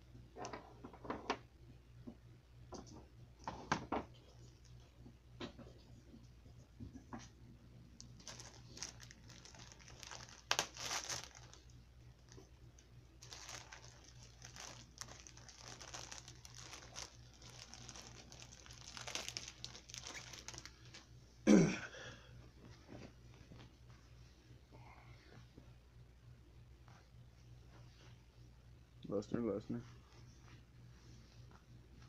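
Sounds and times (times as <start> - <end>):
plastic packaging crinkling: 8.0 - 21.1.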